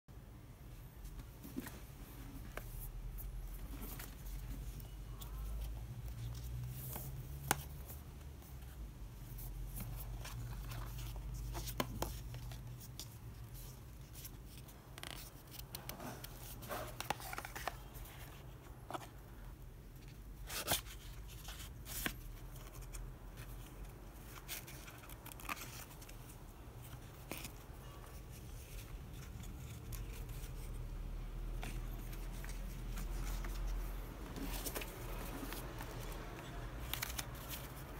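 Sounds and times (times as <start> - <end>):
cardboard box handling: 1.4 - 8.0, 24.2 - 37.9.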